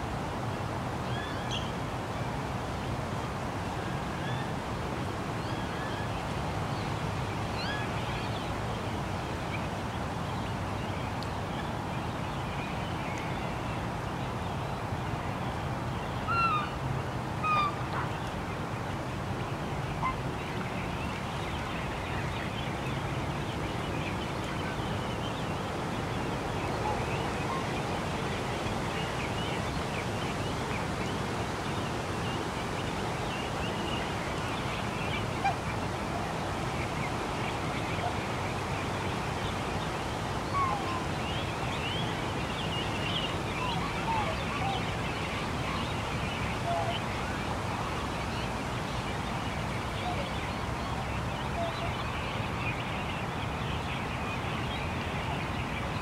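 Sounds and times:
waterfowl calls: 0:16.3 - 0:16.8, 0:17.4 - 0:18.2.

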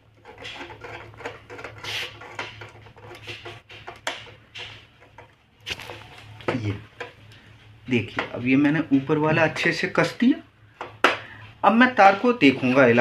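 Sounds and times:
screwdriver clicking and scraping: 0:00.0 - 0:07.2.

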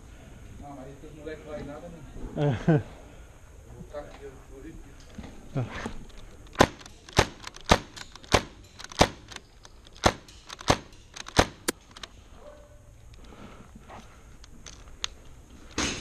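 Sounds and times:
airsoft pistol shots: 0:06.5 - 0:09.4, 0:10.0 - 0:11.8.

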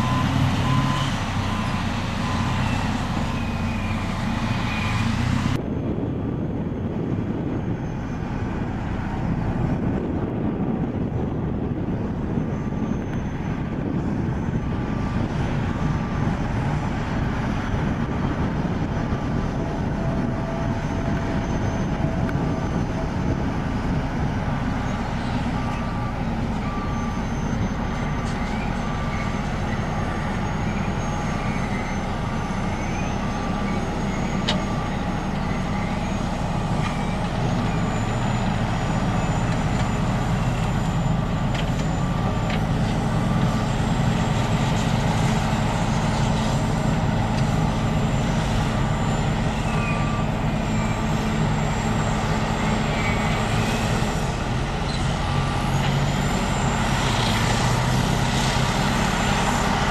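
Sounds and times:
heavy diesel engine under load: 0:00.0 - 0:59.9.

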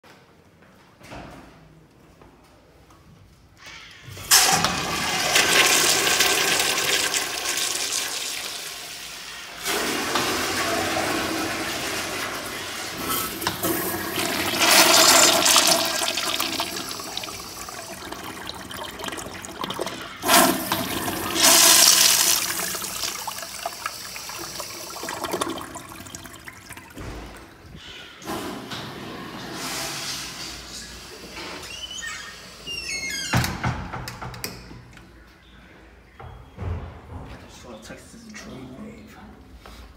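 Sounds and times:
water rushing into urinal: 0:04.2 - 0:28.6.

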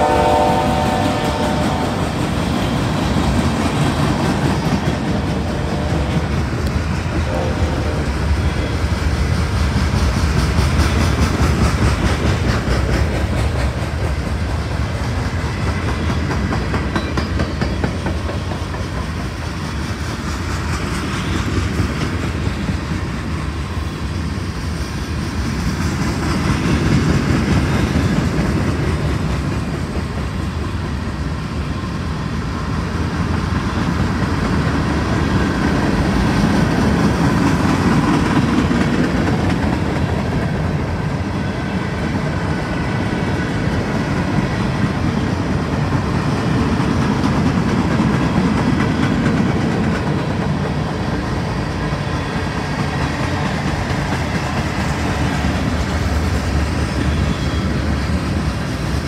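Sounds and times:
locomotive air horn: 0:00.0 - 0:02.4, 0:05.1 - 0:06.4, 0:07.2 - 0:09.1, 0:57.0 - 0:58.0
freight train rumble and clickety-clack: 0:00.0 - 0:59.0.

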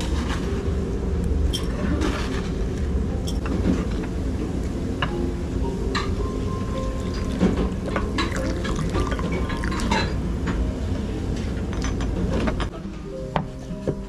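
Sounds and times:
pot and dishes clinking: 0:03.2 - 0:04.0, 0:07.0 - 0:10.6
broth pouring into pot: 0:07.0 - 0:09.9.

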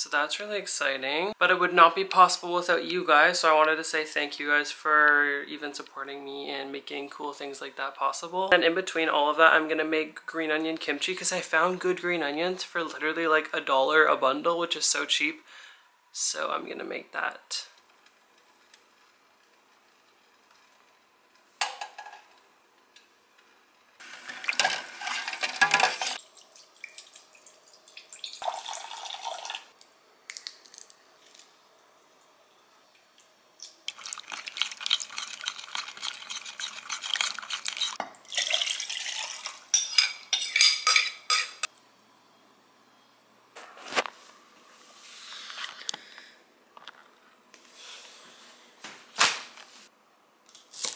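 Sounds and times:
pots and utensils clattering: 0:24.0 - 0:26.2, 0:39.7 - 0:41.7
liquid pouring: 0:24.0 - 0:29.8, 0:33.6 - 0:39.7.

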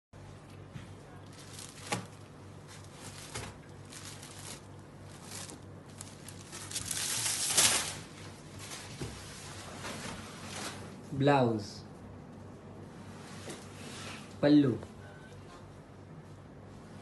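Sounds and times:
silk fabric rustling: 0:02.8 - 0:10.8.

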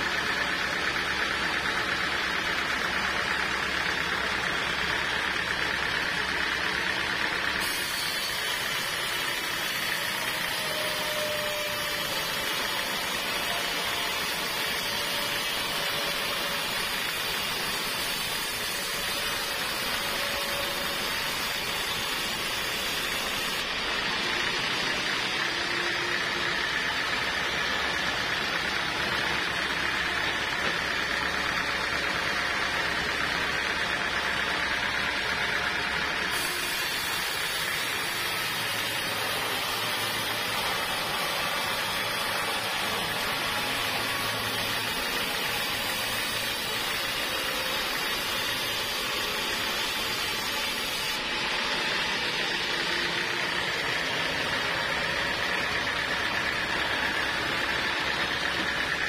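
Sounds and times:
band saw cutting a log: 0:00.0 - 0:59.0.

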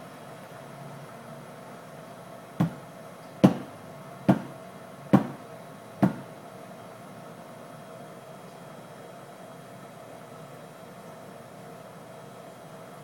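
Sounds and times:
glass knocked on bar top: 0:03.4 - 0:03.7, 0:04.3 - 0:04.5, 0:05.2 - 0:05.4, 0:06.0 - 0:06.3.

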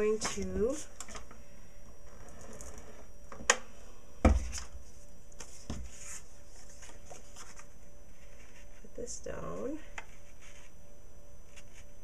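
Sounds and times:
paper rustling: 0:04.5 - 0:08.8.

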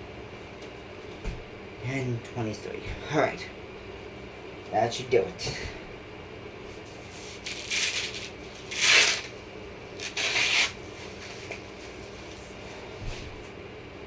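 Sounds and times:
hook-and-loop strap ripping: 0:07.4 - 0:09.3, 0:10.0 - 0:10.8.

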